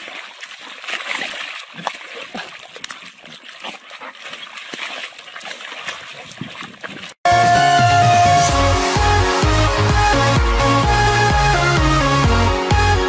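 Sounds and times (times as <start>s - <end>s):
wet mud splashing: 0.0s - 7.2s.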